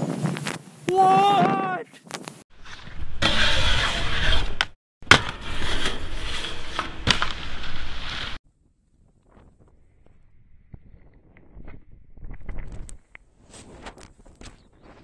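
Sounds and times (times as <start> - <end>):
skis scraping over snow: 5.5 - 8.4.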